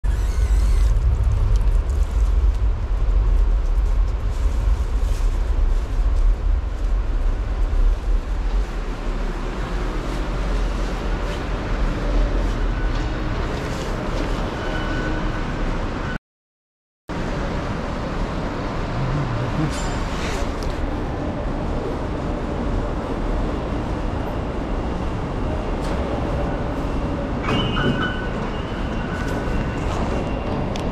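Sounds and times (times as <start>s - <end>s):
low steady rumble: 0.1s - 9.4s.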